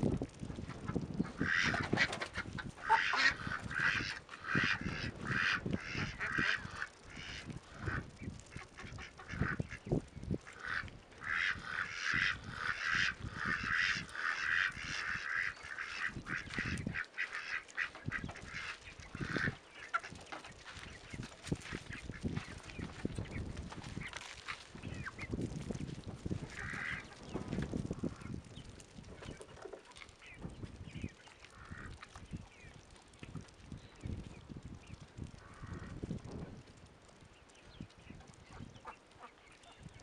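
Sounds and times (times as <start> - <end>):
ducks quacking: 0.6 - 24.2, 26.3 - 28.4, 29.1 - 32.8, 38.0 - 39.9
geese honking: 1.3 - 9.8, 10.5 - 21.2, 26.5 - 27.1, 31.4 - 32.0.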